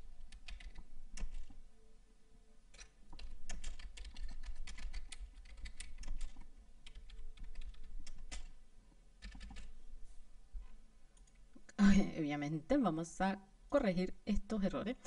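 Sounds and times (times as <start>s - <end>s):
typing on computer keyboard: 0.2s - 1.6s, 2.8s - 8.6s, 9.2s - 9.7s.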